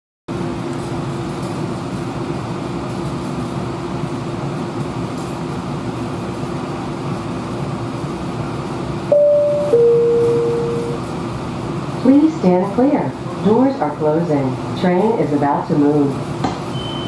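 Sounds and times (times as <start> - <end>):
streetcar equipment hum: 0.3 - 17.0
two-note door chime: 9.1 - 11.0.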